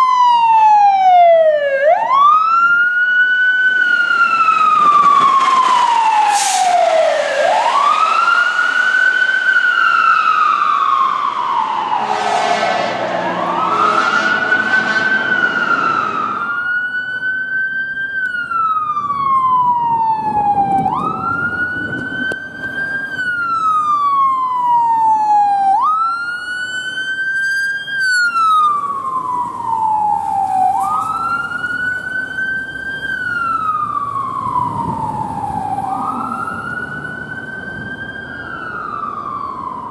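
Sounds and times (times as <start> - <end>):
fire engine siren wailing: 0.0 - 39.9
air horn blasts: 11.9 - 16.6.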